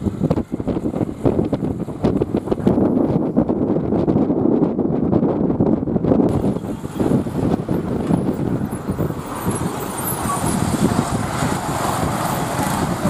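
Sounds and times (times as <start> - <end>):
buses passing: 0.0 - 3.9, 6.3 - 13.0
road traffic rumble: 0.0 - 13.0.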